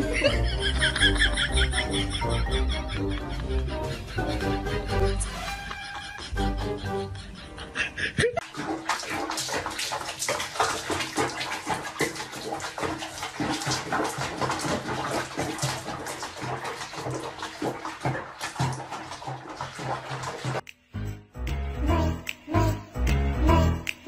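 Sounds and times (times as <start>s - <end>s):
water splashing in a basin: 8.4s - 20.6s.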